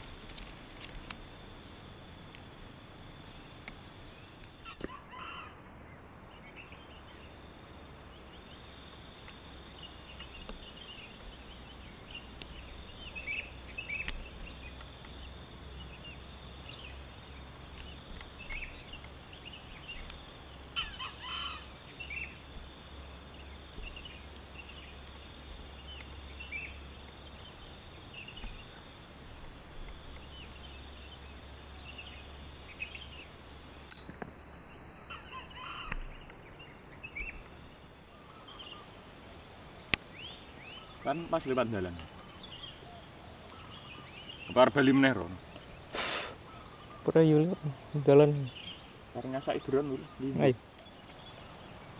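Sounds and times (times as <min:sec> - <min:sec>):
insects buzzing: 0:00.0 - 0:51.9
bird chirps: 0:35.1 - 0:39.0, 0:39.8 - 0:51.9.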